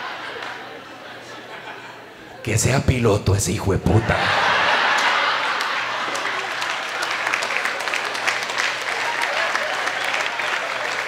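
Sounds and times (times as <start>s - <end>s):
audience applauding: 4.1s - 11.0s.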